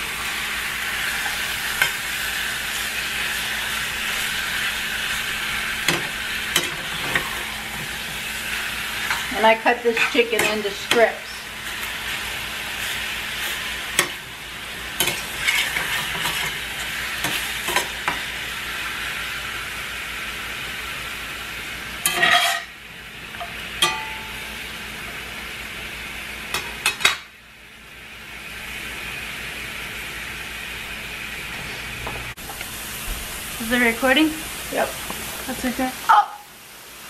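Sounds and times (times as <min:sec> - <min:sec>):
food sizzling in skillets: 0:00.0 - 0:37.0
spatula scraping pans: 0:05.8 - 0:11.9, 0:15.0 - 0:18.2, 0:22.0 - 0:22.7.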